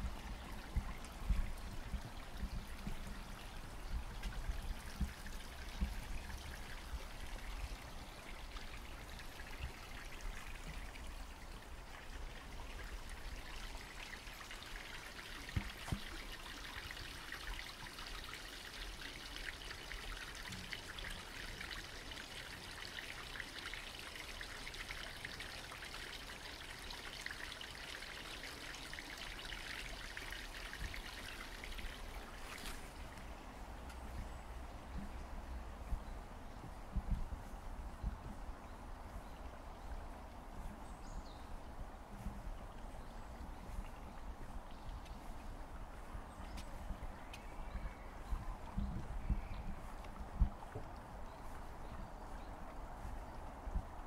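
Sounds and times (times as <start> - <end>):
stream babbling over stones: 0.0 - 34.4.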